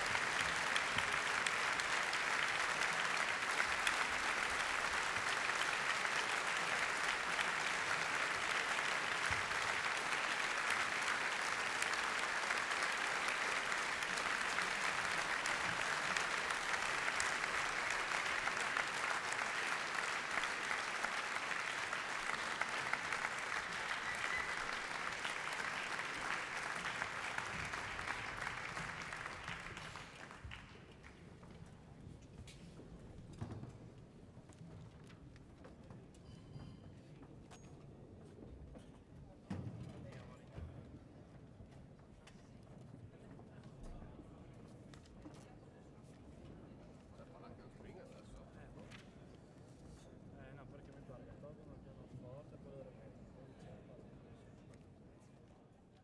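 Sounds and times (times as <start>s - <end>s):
audience applauding: 0.0s - 31.5s.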